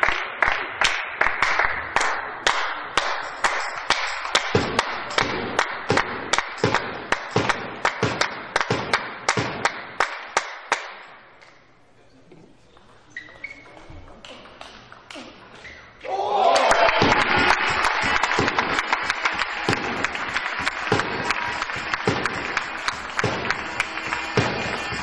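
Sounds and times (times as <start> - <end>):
spectators clapping in unison: 0.0 - 11.0, 16.4 - 25.0.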